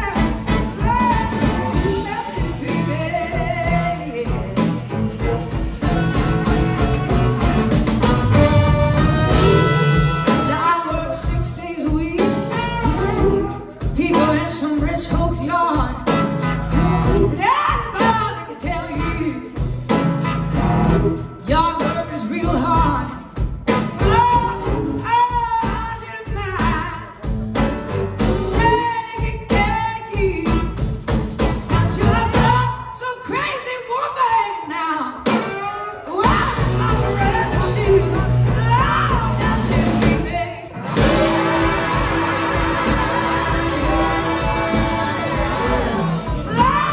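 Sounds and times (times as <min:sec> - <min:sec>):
woman singing lead vocal: 0:00.0 - 0:04.9, 0:09.4 - 0:16.2, 0:16.8 - 0:19.6, 0:21.4 - 0:23.4, 0:24.0 - 0:27.2, 0:28.5 - 0:30.8, 0:31.7 - 0:35.3, 0:36.0 - 0:46.9
live blues rock band: 0:00.0 - 0:46.9.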